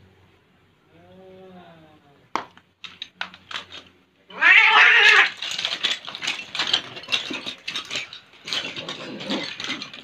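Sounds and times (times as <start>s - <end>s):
cat cries: 4.3s - 5.4s
cats screeching: 4.3s - 5.5s.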